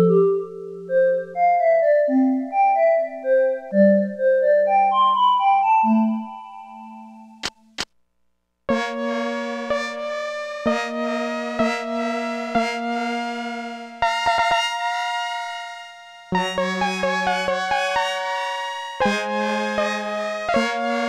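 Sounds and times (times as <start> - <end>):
keyboard chords: 0.0 - 7.8, 8.7 - 21.0
short clicks: 7.4 - 8.0.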